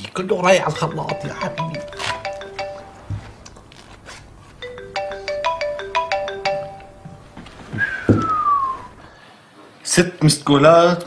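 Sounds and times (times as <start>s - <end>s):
mobile phone ringtone: 0.7s - 7.8s.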